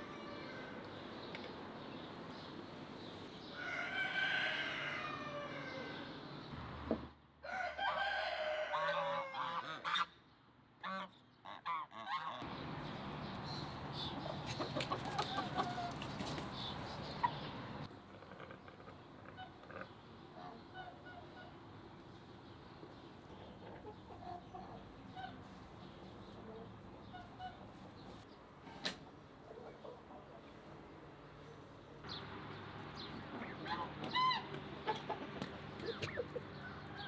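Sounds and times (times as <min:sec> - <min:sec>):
hens clucking: 0:14.2 - 0:17.5, 0:33.2 - 0:36.7.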